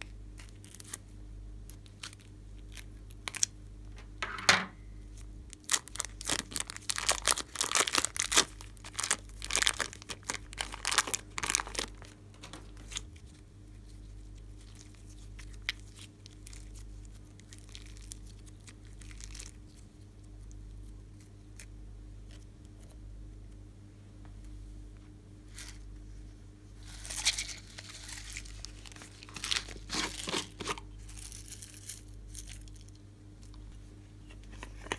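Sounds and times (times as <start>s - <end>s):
plastic wrapping crinkling and tearing: 0.4s - 1.0s, 1.7s - 3.5s, 5.1s - 21.7s, 26.8s - 33.0s.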